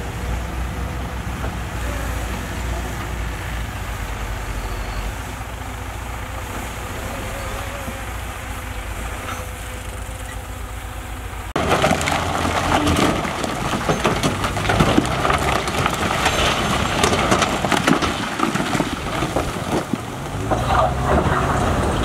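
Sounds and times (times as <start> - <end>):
heavy diesel machine humming: 0.0 - 17.7
rocks crashing and tumbling: 11.6 - 22.0.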